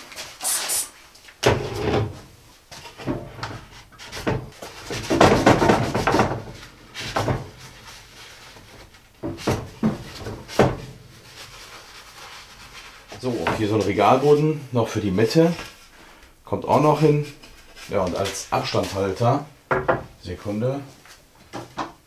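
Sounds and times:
hollow wooden knocks: 0:19.7 - 0:20.1.

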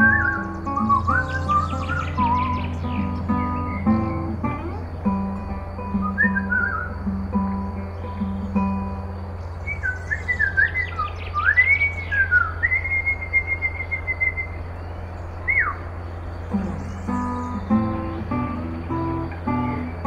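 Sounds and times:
bird-like whistled calls: 0:00.0 - 0:04.2, 0:05.9 - 0:07.0, 0:09.6 - 0:14.7, 0:15.4 - 0:15.8, 0:16.5 - 0:19.1
low steady hum: 0:00.0 - 0:20.0.

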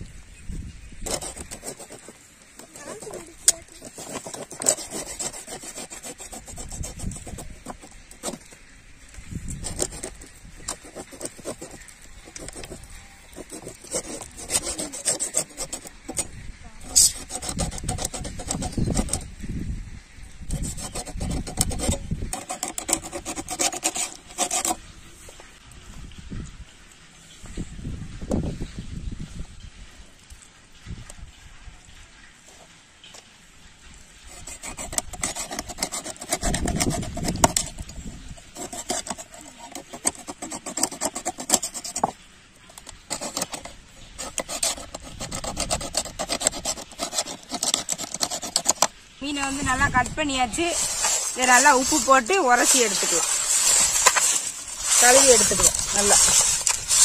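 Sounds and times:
fish scraping on steel plate: 0:01.0 - 0:08.8, 0:09.5 - 0:19.3, 0:20.5 - 0:24.8, 0:34.2 - 0:57.0.

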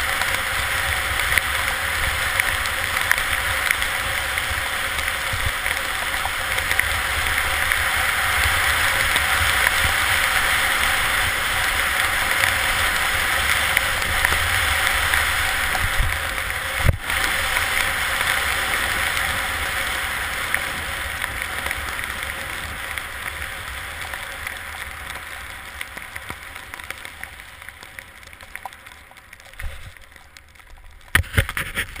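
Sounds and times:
wind buffeting microphone: 0:06.7 - 0:23.9
skis hissing over snow: 0:29.6 - 0:30.0, 0:31.2 - 0:32.0.

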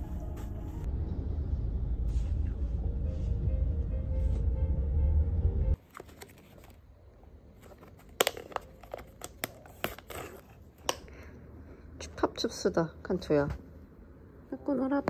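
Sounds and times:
low rumble: 0:00.0 - 0:05.8.

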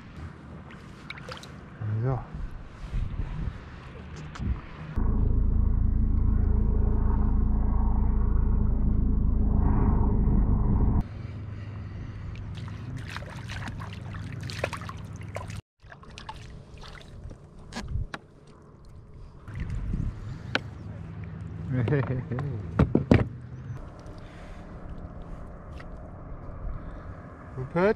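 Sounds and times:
water lapping around kayak: 0:00.0 - 0:01.8, 0:11.1 - 0:21.7, 0:23.8 - 0:27.2
wind buffeting microphone: 0:02.2 - 0:05.1, 0:19.0 - 0:20.9.

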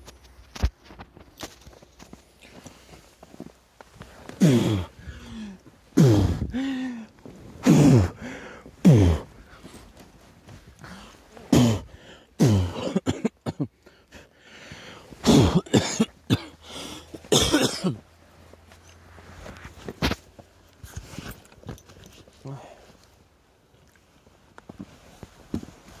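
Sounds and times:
person coughing: 0:04.4 - 0:04.9, 0:06.0 - 0:06.7, 0:07.6 - 0:08.2, 0:08.8 - 0:09.3, 0:11.5 - 0:13.7, 0:15.2 - 0:16.6, 0:17.2 - 0:18.0.

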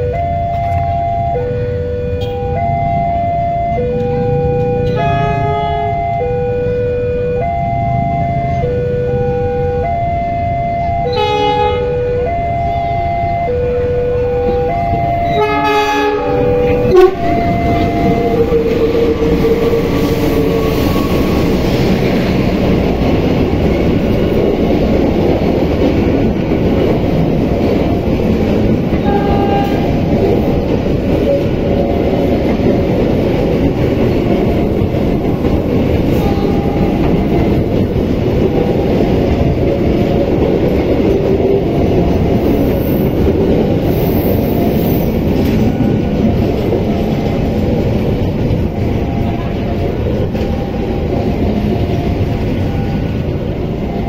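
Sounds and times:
train wheels rumbling on rails: 0:00.0 - 0:54.0
train horn: 0:01.4 - 0:02.6, 0:03.8 - 0:07.5, 0:11.0 - 0:12.4, 0:13.6 - 0:21.5, 0:29.0 - 0:30.1, 0:36.1 - 0:37.5.

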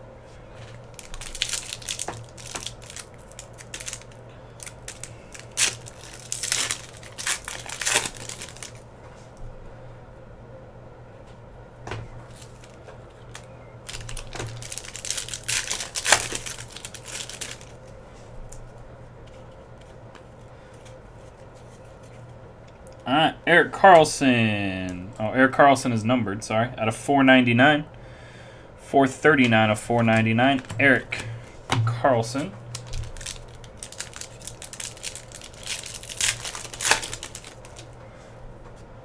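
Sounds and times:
foil wrapper crinkling and tearing: 0:00.7 - 0:08.8, 0:12.3 - 0:17.9, 0:32.7 - 0:37.9.

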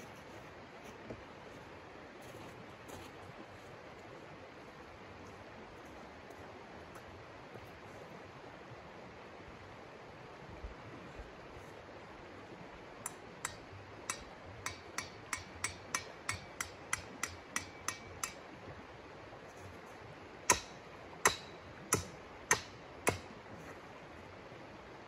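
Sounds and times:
mallet tapping tent stake: 0:13.1 - 0:18.4, 0:20.5 - 0:23.3.

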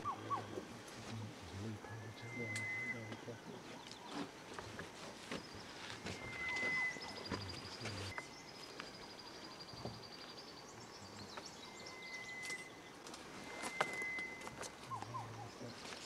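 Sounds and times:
long whistled animal calls: 0:01.9 - 0:03.2, 0:06.0 - 0:07.4, 0:13.4 - 0:15.6.

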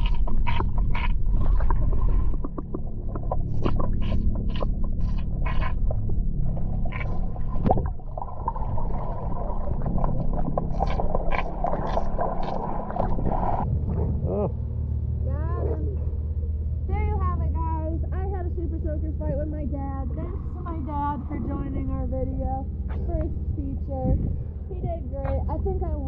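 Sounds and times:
underwater bubble bursts: 0:00.0 - 0:14.5
muffled underwater rumble: 0:00.0 - 0:26.0.

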